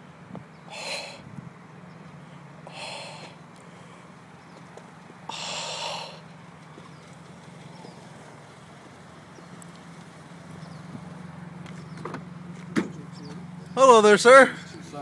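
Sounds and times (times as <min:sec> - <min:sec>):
car engine humming: 0:00.0 - 0:15.0
short hissing bursts: 0:00.7 - 0:01.2, 0:02.7 - 0:03.4, 0:05.3 - 0:06.2.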